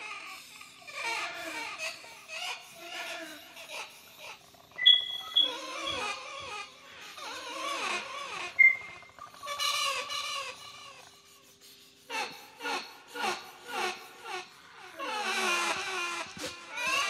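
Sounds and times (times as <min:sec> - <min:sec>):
short calls: 0:04.8 - 0:06.0, 0:08.6 - 0:09.0
wavering wailing calls: 0:04.8 - 0:06.2, 0:07.8 - 0:10.3
steady low hum: 0:08.5 - 0:09.4.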